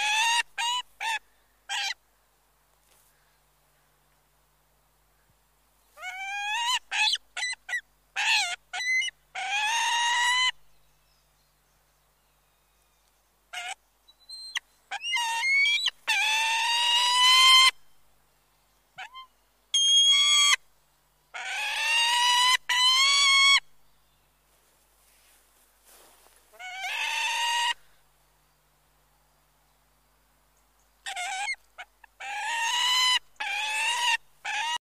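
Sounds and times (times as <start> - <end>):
bird of prey calling: 6.0 - 10.6, 13.5 - 17.8, 19.0 - 20.6, 21.3 - 23.7, 26.5 - 28.0, 31.0 - 34.8.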